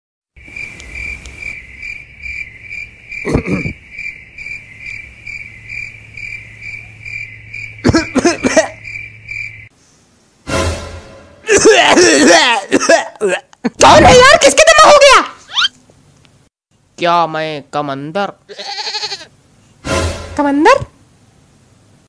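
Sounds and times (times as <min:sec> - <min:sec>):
cricket chirping: 0:00.4 - 0:09.7.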